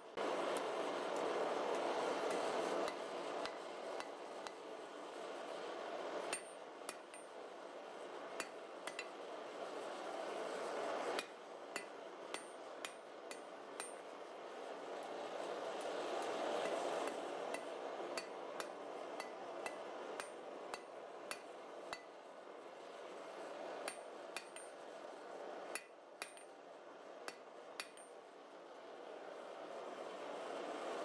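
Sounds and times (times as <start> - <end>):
steady rushing noise: 0.0 - 31.0
hammer striking metal on anvil: 6.3 - 7.3, 8.4 - 9.2, 11.2 - 14.1, 16.2 - 22.2, 23.8 - 24.8, 25.7 - 26.6, 27.3 - 28.2.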